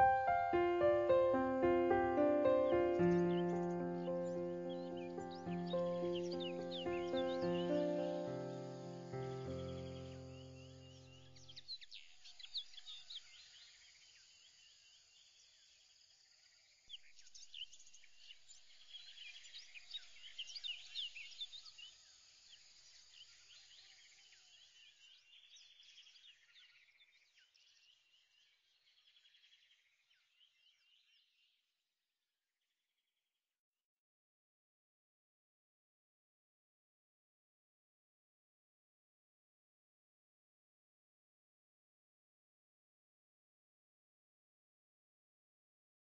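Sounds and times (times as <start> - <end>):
faint birdsong chirps and trills: 0.0 - 31.8.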